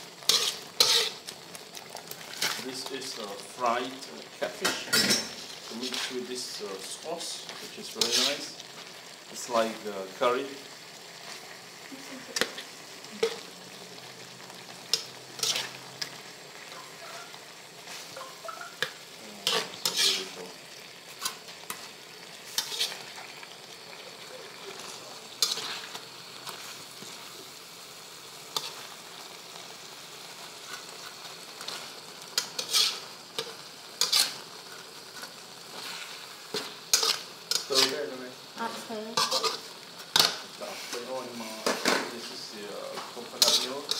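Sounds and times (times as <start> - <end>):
sauce sizzling: 0.0 - 43.9
spatula scraping metal wok: 0.2 - 1.4, 2.1 - 2.9, 4.4 - 6.6, 7.2 - 8.9, 14.7 - 18.3, 19.3 - 23.4, 24.7 - 27.2, 28.5 - 29.0, 30.6 - 43.9.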